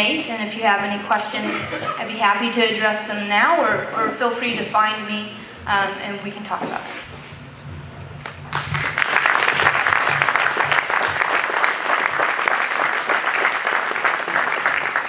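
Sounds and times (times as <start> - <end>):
audience applauding: 8.2 - 15.0.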